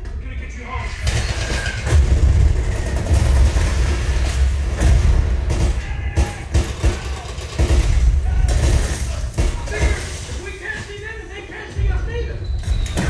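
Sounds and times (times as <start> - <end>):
sharp hits: 0.9 - 11.2.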